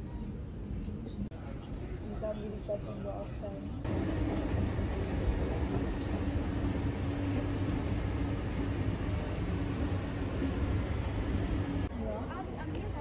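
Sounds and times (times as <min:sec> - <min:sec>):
escalator humming: 0:03.8 - 0:11.9.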